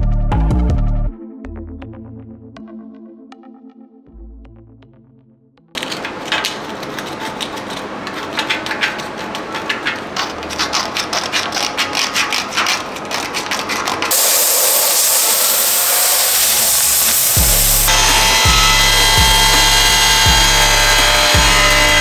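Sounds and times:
background music: 0:00.0 - 0:05.8, 0:17.4 - 0:22.0
wire brush scrubbing metal: 0:05.9 - 0:22.0
loud steady hiss: 0:14.1 - 0:18.5.

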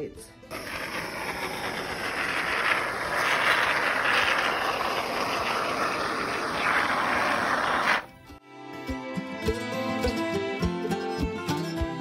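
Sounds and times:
aerosol foam spraying hiss: 0:00.5 - 0:08.1.

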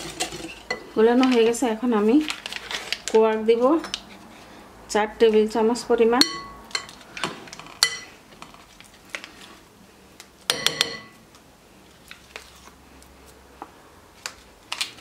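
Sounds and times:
knife clinking against glass bowl: 0:06.2 - 0:06.9.

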